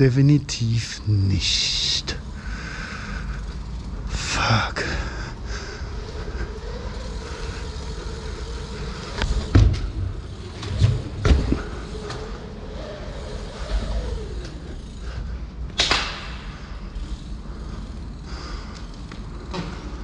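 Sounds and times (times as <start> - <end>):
bike tyres rumbling on ramps: 0.8 - 20.0
bike knocks and clatters: 8.6 - 12.5, 15.7 - 17.2, 18.8 - 20.0.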